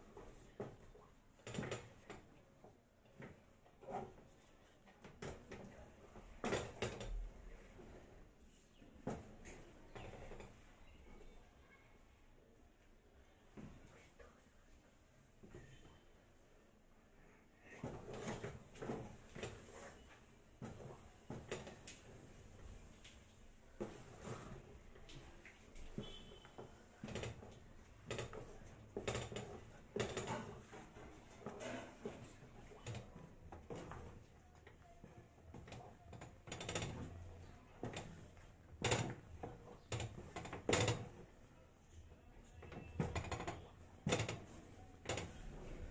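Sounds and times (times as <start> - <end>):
wooden stick stirring in metal pot: 23.6 - 41.4.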